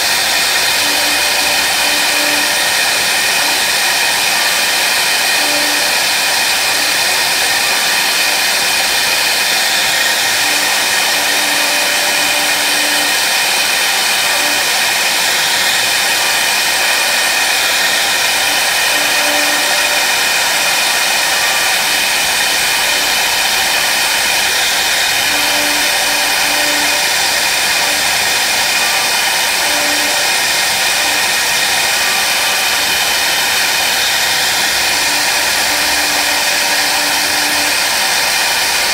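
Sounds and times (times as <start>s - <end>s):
router spindle whining: 0.0s - 38.9s.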